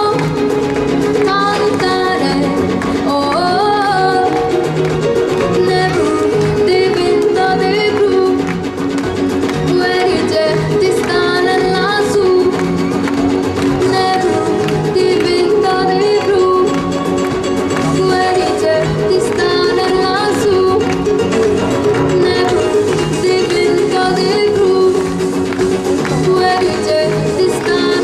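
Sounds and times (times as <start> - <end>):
girl singing into microphone: 0.0 - 0.5, 1.2 - 4.6, 5.4 - 8.5, 9.7 - 12.8, 13.8 - 16.8, 17.8 - 21.1, 22.2 - 25.2, 26.1 - 28.0
backing track with guitar and beat: 0.0 - 28.0.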